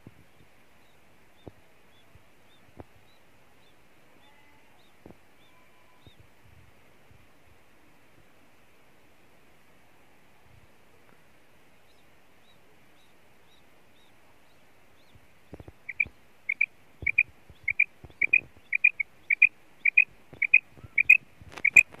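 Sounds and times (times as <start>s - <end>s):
quail calling: 15.5s - 22.0s.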